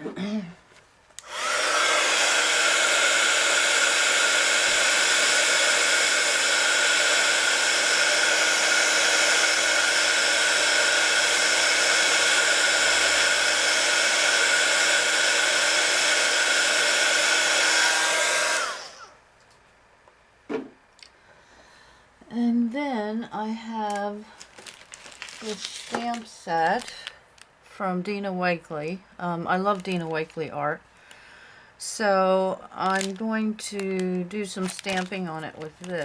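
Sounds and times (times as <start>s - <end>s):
heat gun blowing air: 1.2s - 19.2s, 32.8s - 36.0s.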